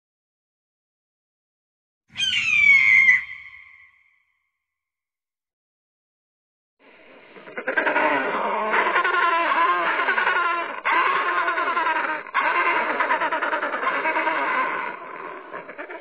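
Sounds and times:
penguins calling harshly: 0:02.2 - 0:03.9, 0:07.4 - 0:16.0.

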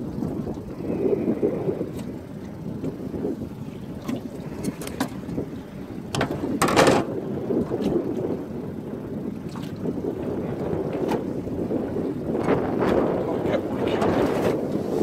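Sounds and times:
wind buffeting microphone: 0:00.0 - 0:15.0
short knocks in boat: 0:04.0 - 0:05.3, 0:06.1 - 0:07.9, 0:10.9 - 0:11.3.

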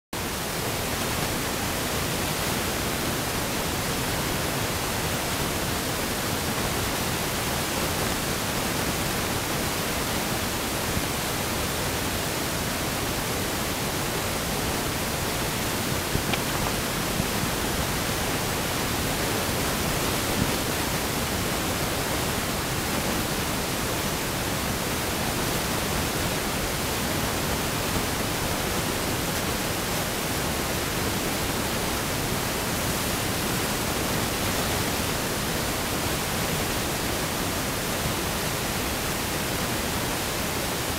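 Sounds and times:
steady hiss: 0:00.2 - 0:40.9.

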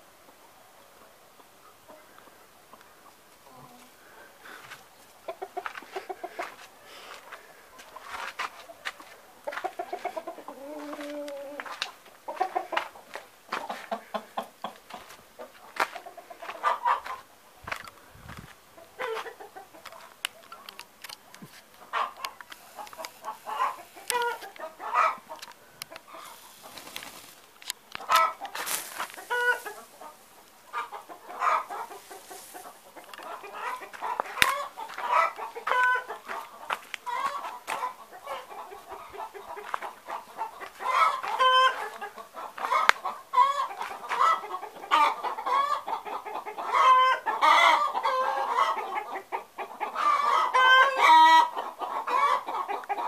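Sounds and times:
poultry calling: 0:09.1 - 0:17.3, 0:21.8 - 0:27.3, 0:28.0 - 0:53.0.

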